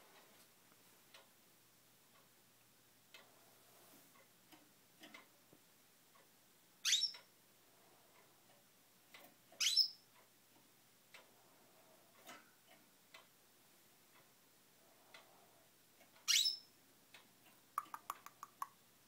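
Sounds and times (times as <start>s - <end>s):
canary chirping: 6.8s - 7.3s, 9.5s - 10.1s, 16.2s - 16.8s
faint ticks: 7.1s - 9.4s, 10.1s - 13.3s, 15.0s - 16.3s, 17.1s - 18.8s.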